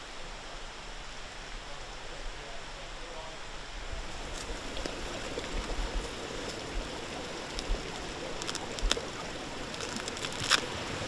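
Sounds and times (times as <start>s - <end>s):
creek rushing: 0.0s - 11.0s
boot laces clicking: 9.7s - 10.7s.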